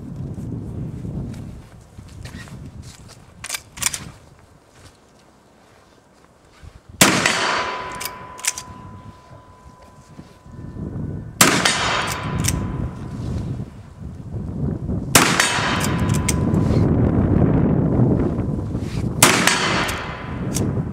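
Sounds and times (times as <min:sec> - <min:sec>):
rifle shots: 0:07.0 - 0:09.1, 0:11.4 - 0:12.9, 0:15.1 - 0:16.8, 0:19.2 - 0:20.6
rifle lever metallic clacks: 0:07.2 - 0:08.9, 0:11.6 - 0:12.7, 0:15.4 - 0:16.4.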